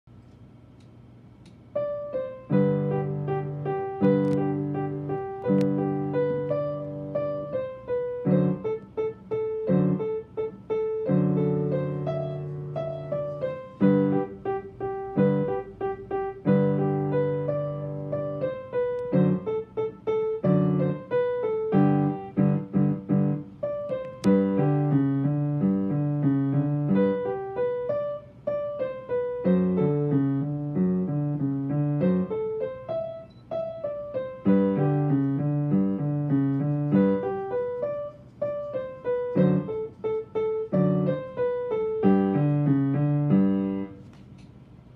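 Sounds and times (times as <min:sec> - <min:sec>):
upright piano boogie piece: 0:01.8 - 0:44.0.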